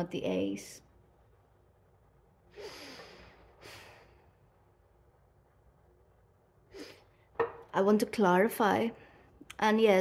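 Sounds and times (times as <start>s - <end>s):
woman breathing: 2.5s - 4.5s.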